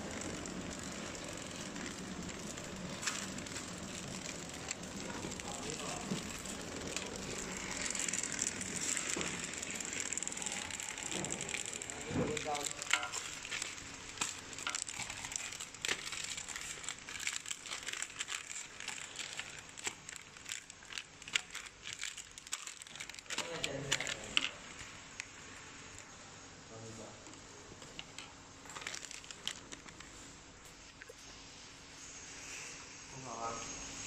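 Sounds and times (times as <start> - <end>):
packing machine running: 0.0 - 24.8
foil pouches crinkling: 0.0 - 24.9, 28.6 - 31.1.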